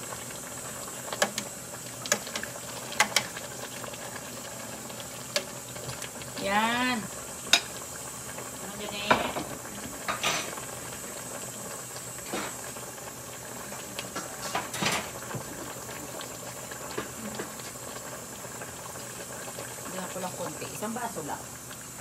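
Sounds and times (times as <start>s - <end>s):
stew bubbling in a pot: 0.0s - 22.0s.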